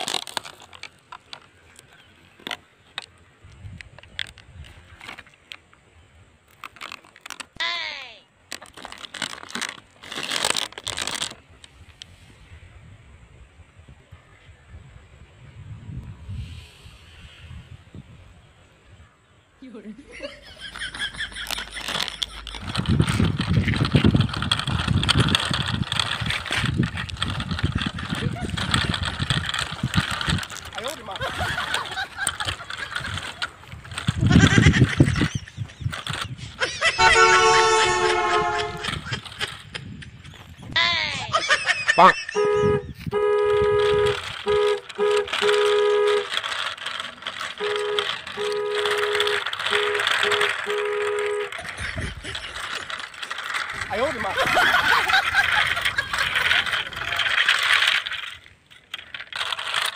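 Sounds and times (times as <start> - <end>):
toy trucks rolling on cement: 0.0 - 5.8, 6.5 - 7.7, 8.4 - 12.2, 20.1 - 59.9
steady hiss: 16.2 - 18.2
two-note vehicle horn honking: 37.0 - 38.8, 42.4 - 46.4, 47.6 - 51.6.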